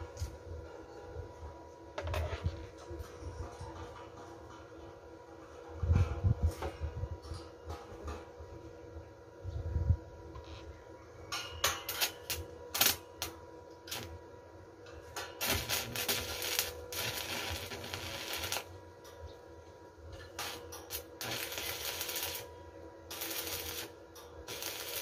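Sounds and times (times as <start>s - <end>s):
welding arc crackling: 11.9s - 14.1s, 15.2s - 18.8s, 20.1s - 22.5s, 23.1s - 25.0s.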